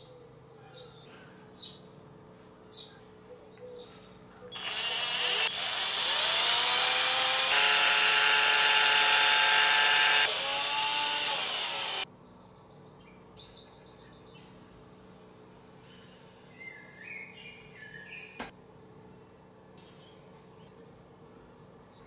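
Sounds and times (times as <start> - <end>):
electric drill running: 4.6 - 12.0.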